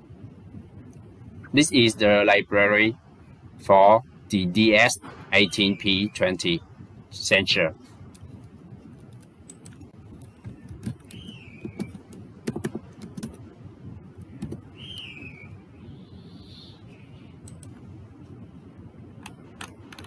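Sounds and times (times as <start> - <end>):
low background noise: 0.0 - 20.0
keyboard keys clicking: 8.9 - 13.5, 14.2 - 15.1, 17.4 - 17.8, 19.2 - 20.0.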